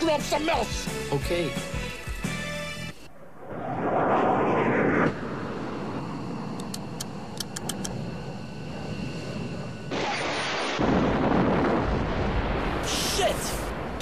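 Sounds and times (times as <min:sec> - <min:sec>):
jet engine roar: 0:02.8 - 0:14.0
faint high-pitched ticks: 0:06.6 - 0:08.0.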